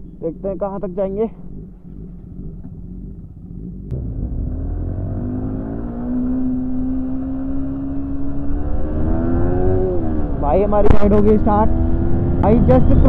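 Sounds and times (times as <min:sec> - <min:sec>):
motorcycle engine: 0:00.0 - 0:13.0.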